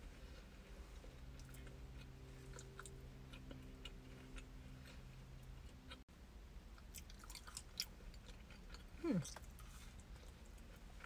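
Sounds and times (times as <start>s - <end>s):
chewing cookie: 0.1s - 6.0s, 6.8s - 11.0s.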